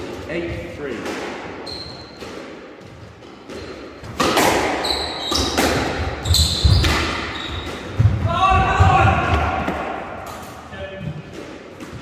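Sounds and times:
shoes squeaking on wooden floor: 1.6s - 4.2s, 4.8s - 8.8s
squash ball cracking off rackets: 2.1s - 8.2s.

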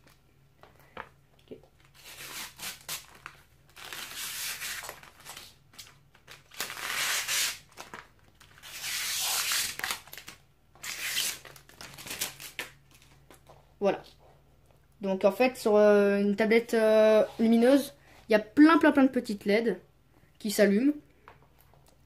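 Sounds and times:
plastic film peeling: 1.8s - 13.4s.

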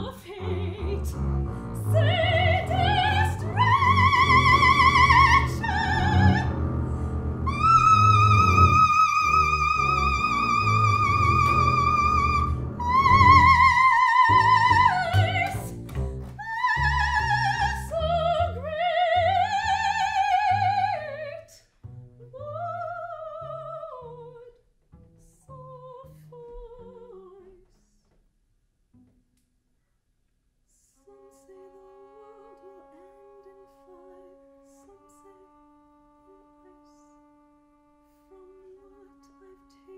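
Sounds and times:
soprano singing with vibrato: 0.0s - 1.2s, 1.8s - 6.6s, 7.5s - 21.6s, 22.3s - 24.6s, 25.4s - 27.6s
bowed double bass: 0.0s - 28.3s.

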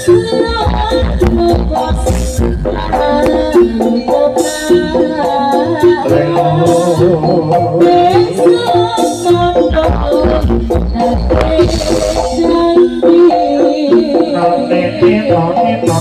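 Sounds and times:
sharp drum strokes: 0.9s - 14.4s
heavy bass beat: 9.4s - 16.0s.

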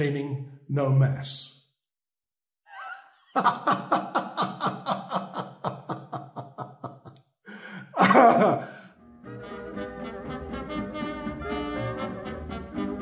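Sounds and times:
man laughing heartily: 2.7s - 8.9s
brass swing music: 9.2s - 13.0s.

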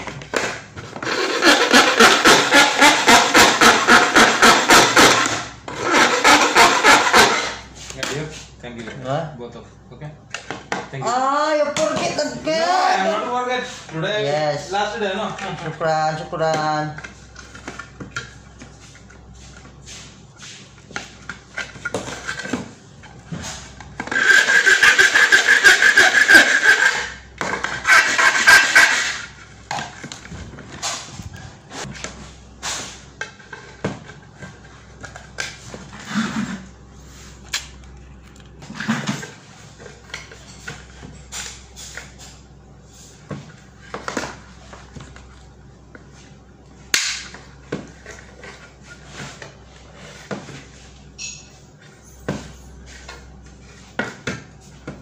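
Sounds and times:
loud rasping crinkling: 0.9s - 7.6s, 24.1s - 29.4s.

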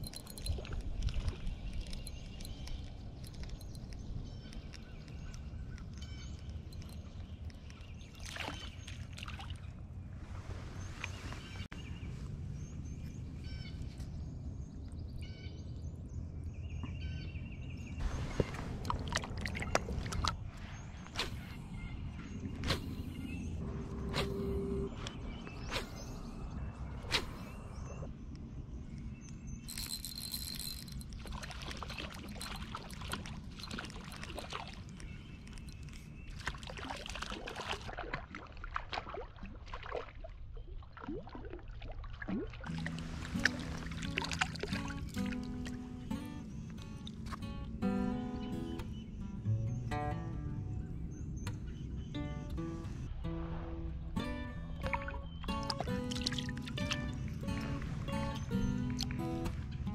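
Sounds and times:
water splashing and dripping: 0.0s - 9.9s, 18.0s - 21.6s, 29.7s - 47.4s, 53.3s - 59.8s
small birds chirping: 0.0s - 10.1s, 10.7s - 37.3s, 43.3s - 53.2s, 54.2s - 59.9s
low background hum: 9.0s - 36.6s
low rumble: 17.9s - 29.6s.

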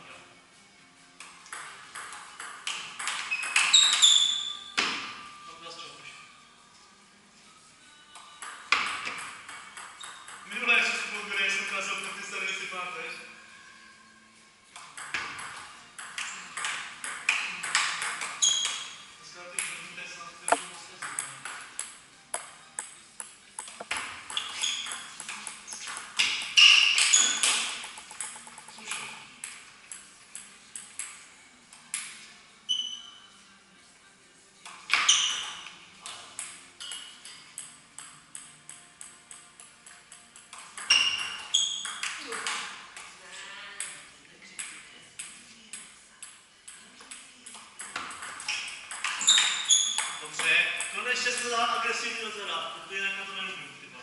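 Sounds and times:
short high squeaks: 3.4s - 4.7s, 49.2s - 50.1s
table tennis ball clicking: 20.5s - 31.2s.

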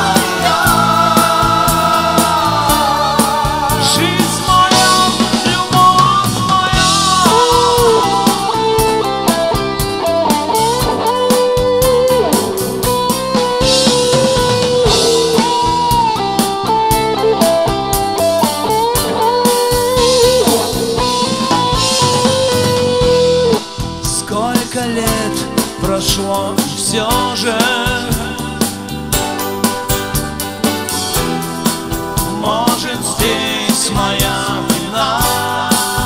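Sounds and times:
song with guitar and drums: 0.0s - 36.0s.

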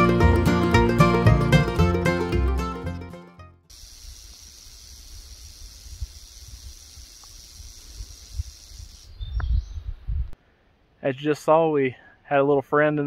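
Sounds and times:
background music: 0.0s - 3.6s
rattlesnake rattling: 3.7s - 9.3s.

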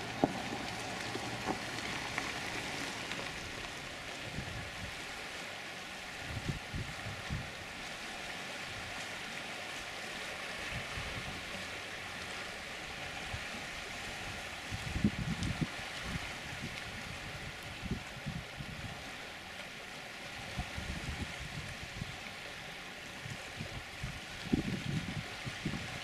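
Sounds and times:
choppy water: 0.0s - 26.0s
wind: 0.0s - 26.0s
wind bumps on microphone: 4.3s - 5.0s, 6.2s - 7.5s, 14.7s - 19.0s, 20.5s - 22.2s, 23.2s - 26.0s.

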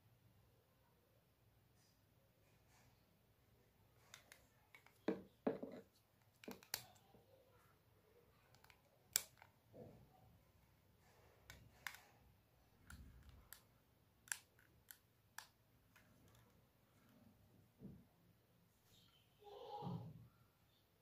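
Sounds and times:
sharp plastic clicks: 8.5s - 9.6s, 12.8s - 16.5s.

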